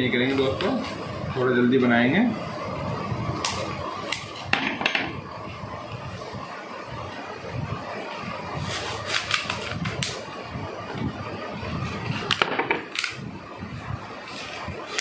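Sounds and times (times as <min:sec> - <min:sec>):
plastic cups clicking and crinkling: 0:09.0 - 0:10.3.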